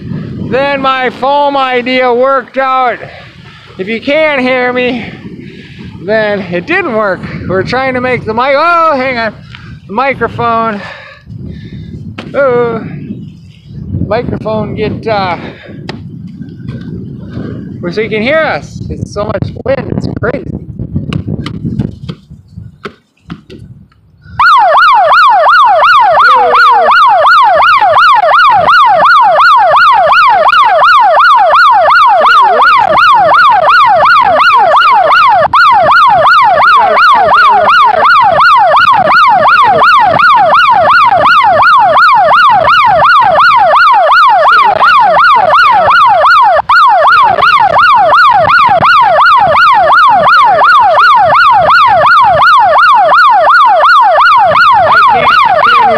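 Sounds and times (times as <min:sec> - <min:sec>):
wind rumble on microphone: 0:00.0 - 0:55.9
electronic siren alarm: 0:24.2 - 0:55.9.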